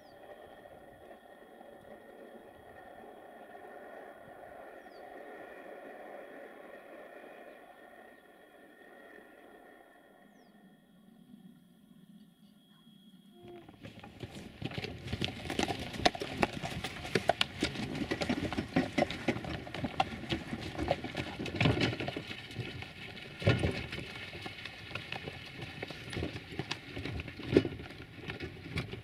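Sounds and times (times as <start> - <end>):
hooves clopping: 13.4 - 29.0
cart knocks: 13.6 - 29.0
wooden cart rattling: 13.6 - 29.0.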